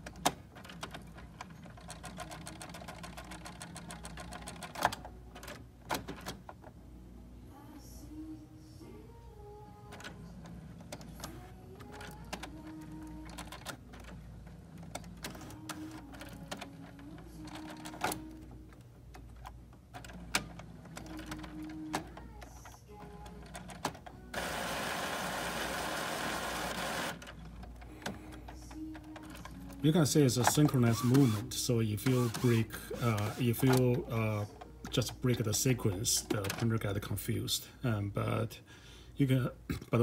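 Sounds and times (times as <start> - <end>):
printer motor whines: 24.3 - 27.2, 30.7 - 33.8.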